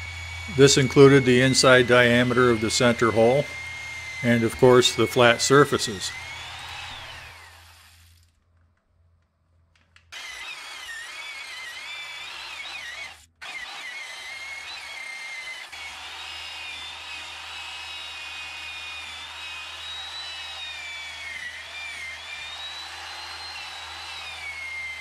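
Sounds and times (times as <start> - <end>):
wire wheel scrubbing rust: 0.0 - 8.1
electric drill with wire wheel: 0.0 - 8.4, 10.1 - 25.0.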